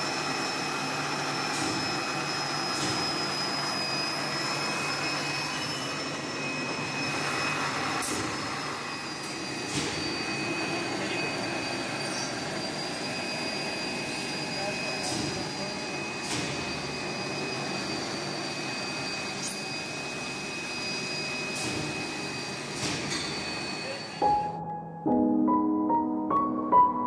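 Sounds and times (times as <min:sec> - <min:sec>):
blower hissing with high whine: 0:00.0 - 0:24.6.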